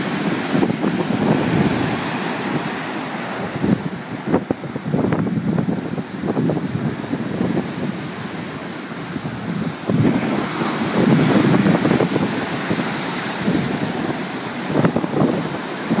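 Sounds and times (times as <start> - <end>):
surf breaking on beach: 0.0 - 16.0
wind buffeting microphone: 0.0 - 16.0.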